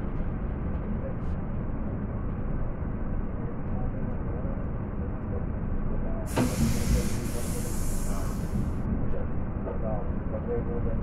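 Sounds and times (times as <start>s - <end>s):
train rumbling inside carriage: 0.0s - 11.0s
loud rushing hiss: 6.3s - 8.8s.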